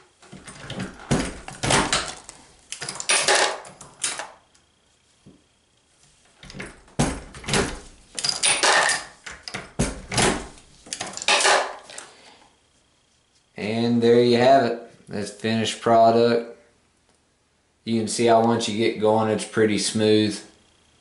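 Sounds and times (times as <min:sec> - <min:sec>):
reloading press metallic clanking: 0:00.6 - 0:04.3, 0:08.2 - 0:12.0.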